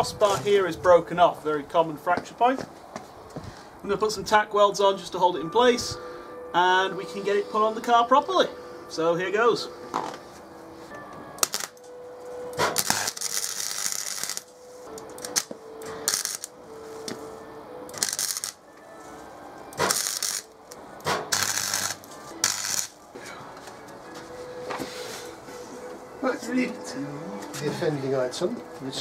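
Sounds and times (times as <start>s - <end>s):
arc welder crackling: 11.4s - 11.8s, 12.5s - 16.6s, 17.9s - 18.7s, 19.7s - 23.0s.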